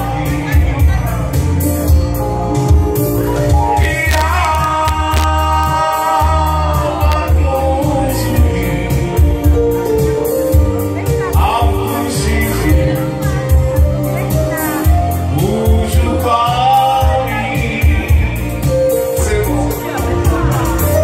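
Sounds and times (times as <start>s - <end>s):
amplified music with singing: 0.0s - 21.0s
heavy pulsing bass: 2.3s - 9.8s.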